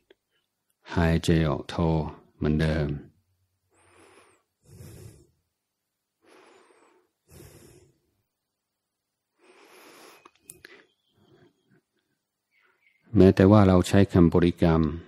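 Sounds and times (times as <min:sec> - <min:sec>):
person breathing: 0:03.7 - 0:08.4, 0:09.3 - 0:11.9
faint clicks: 0:10.2 - 0:10.8.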